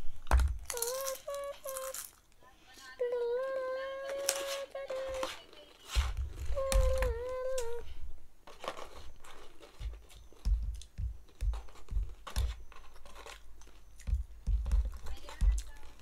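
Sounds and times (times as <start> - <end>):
dull thumps: 4.8 - 7.9, 8.5 - 16.0.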